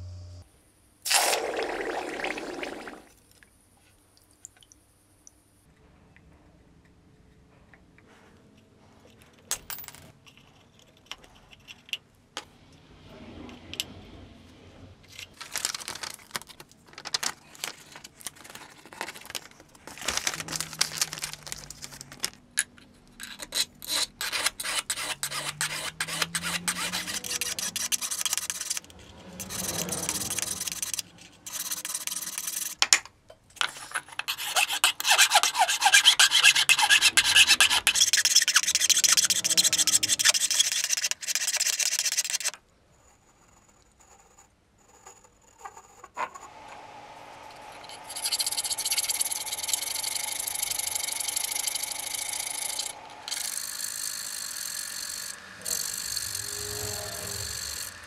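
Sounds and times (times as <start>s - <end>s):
hand file rasping on metal: 23.2s - 32.5s, 34.1s - 42.5s.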